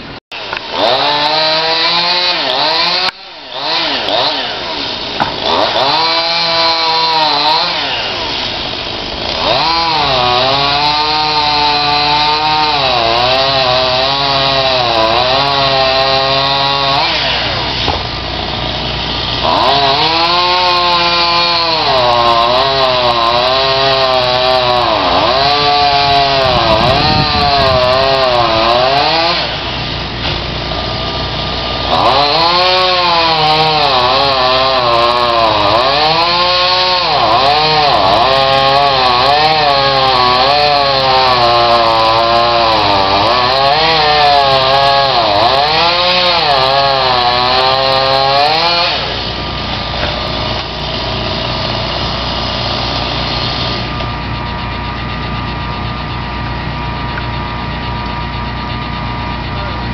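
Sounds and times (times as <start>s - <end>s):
chainsaw cutting wood: 0.0s - 59.9s.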